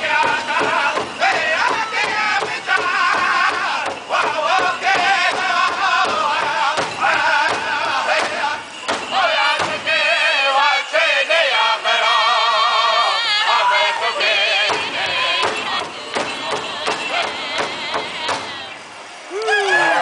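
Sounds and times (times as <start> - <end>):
large drum beats: 0.0 - 10.1, 14.6 - 18.7
group singing in wavering voices: 0.0 - 19.2.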